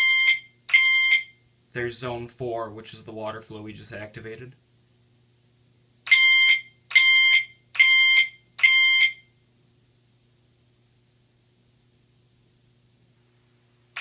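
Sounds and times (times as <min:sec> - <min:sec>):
fire alarm chime tones: 0:00.0 - 0:01.4, 0:06.1 - 0:09.3.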